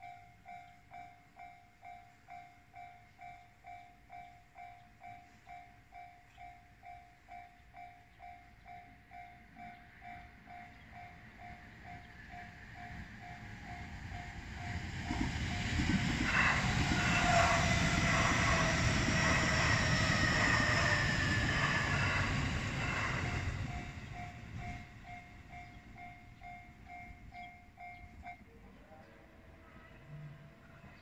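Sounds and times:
level-crossing warning bell: 0:00.0 - 0:29.6
train wheels rumbling on rails: 0:09.1 - 0:28.5.

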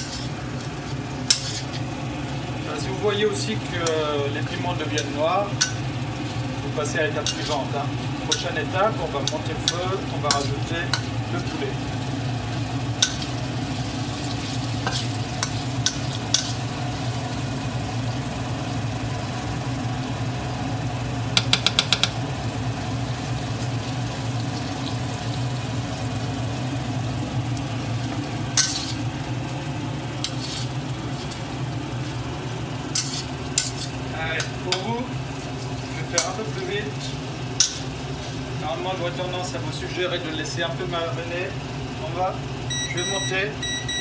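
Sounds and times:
spatula scraping wok: 0:00.0 - 0:17.1, 0:27.8 - 0:38.6
steady low hum: 0:00.0 - 0:21.4, 0:22.1 - 0:44.0
light sizzle of frying: 0:00.0 - 0:43.6
spatula clicking against pan: 0:21.4 - 0:22.2.

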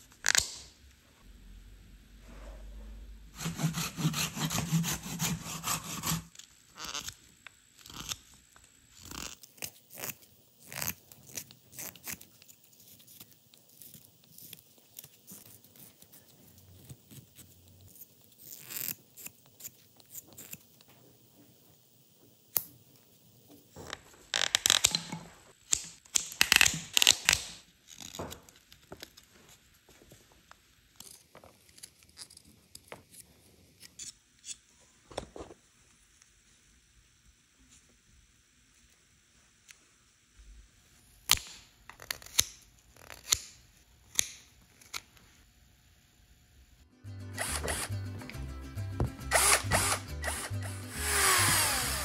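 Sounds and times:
knife scraping wood: 0:03.4 - 0:07.2.

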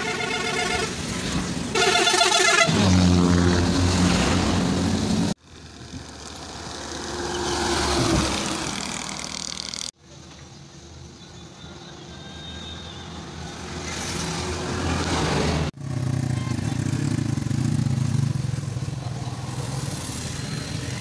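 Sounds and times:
multi-tone vehicle horn blaring: 0:00.0 - 0:01.1, 0:01.7 - 0:03.0, 0:11.9 - 0:13.3, 0:16.2 - 0:16.9
minibus engine passing: 0:00.0 - 0:10.2.

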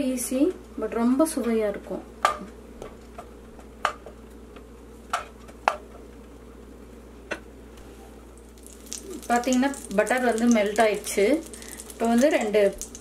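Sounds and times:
faint steady hiss: 0:06.8 - 0:13.0
butter ticking and popping: 0:08.4 - 0:13.0.

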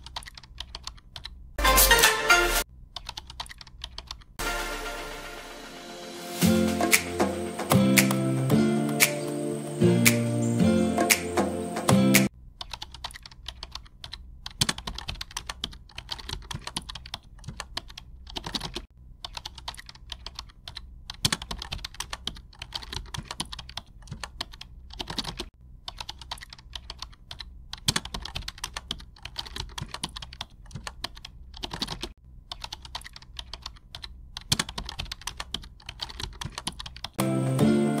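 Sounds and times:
rapid scratchy writing clicks: 0:12.6 - 0:37.2.

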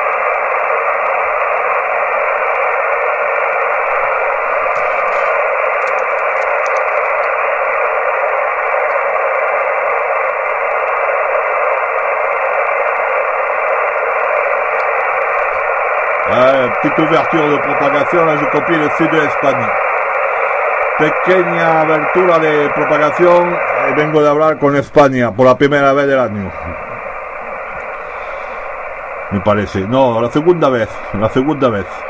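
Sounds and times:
radio static hiss: 0:00.0 - 0:32.0.

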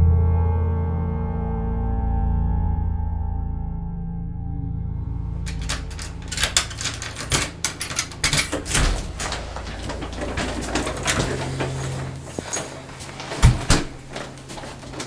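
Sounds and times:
door lock clicks and rattles: 0:05.5 - 0:15.0.

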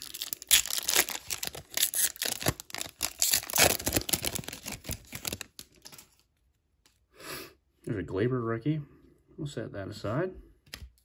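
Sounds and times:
card pack wrapper crinkling: 0:00.0 - 0:06.3.

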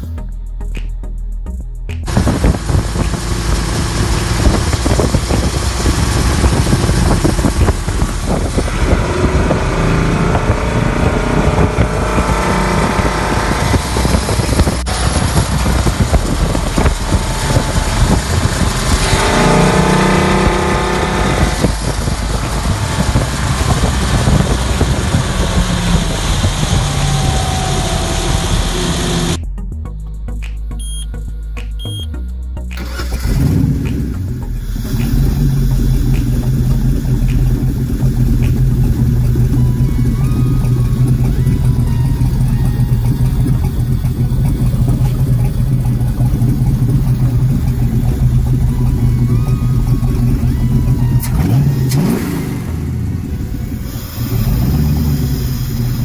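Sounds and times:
boat engine running hard: 0:02.1 - 0:29.4, 0:34.3 - 0:56.0
wind buffeting microphone: 0:02.1 - 0:29.4.

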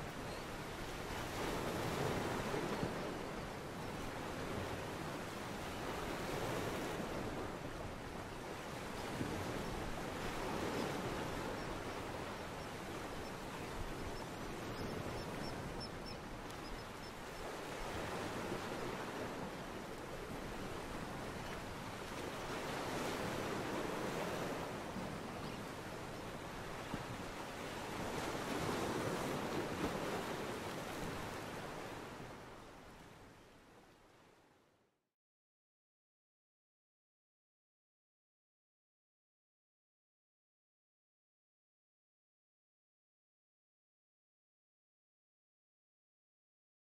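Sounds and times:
lake waves washing on shore: 0:00.0 - 0:34.6.

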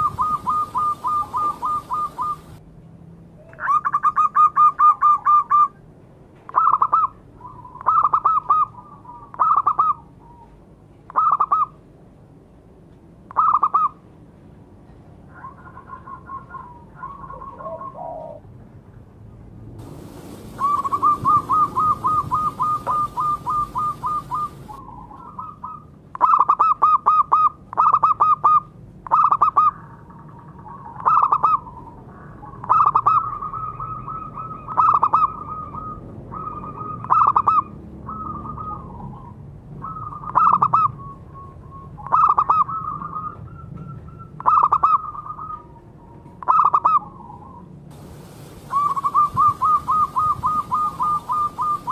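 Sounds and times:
dove cooing: 0:00.0 - 0:02.6, 0:06.5 - 0:11.7, 0:15.3 - 0:18.5, 0:19.8 - 0:47.6, 0:48.6 - 0:51.9
steady hiss: 0:00.0 - 0:02.6, 0:19.8 - 0:24.8, 0:47.9 - 0:51.9.

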